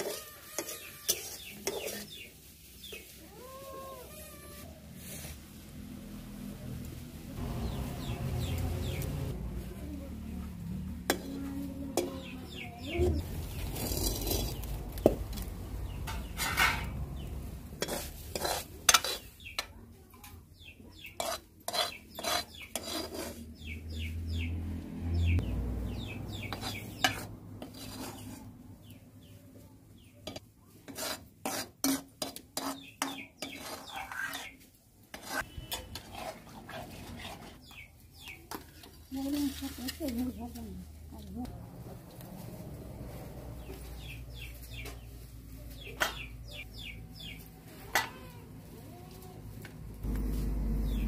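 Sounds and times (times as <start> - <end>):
ladle scraping in metal wok: 0.0 - 3.1, 11.0 - 12.2, 13.3 - 14.8, 15.8 - 19.7, 21.2 - 23.5, 26.4 - 28.5, 30.3 - 37.8.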